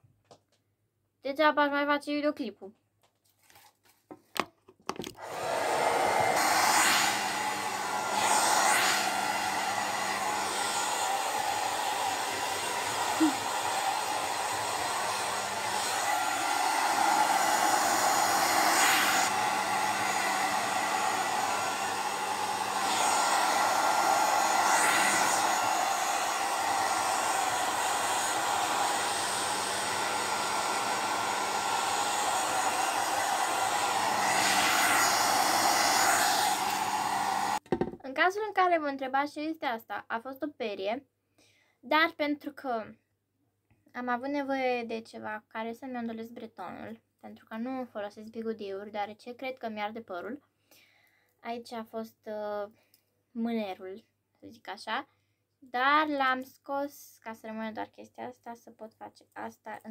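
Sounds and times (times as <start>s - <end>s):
hair dryer blowing: 5.1s - 38.0s.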